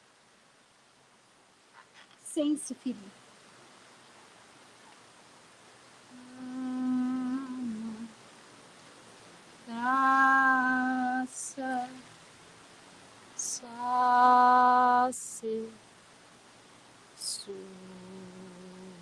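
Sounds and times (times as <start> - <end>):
woman singing long held notes: 6.1 - 8.2, 9.6 - 12.1, 13.4 - 15.8, 17.2 - 19.0.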